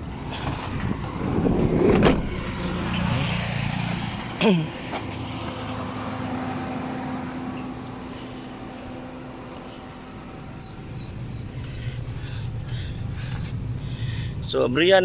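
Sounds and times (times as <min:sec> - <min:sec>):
bird chirps: 0:07.5 - 0:14.0.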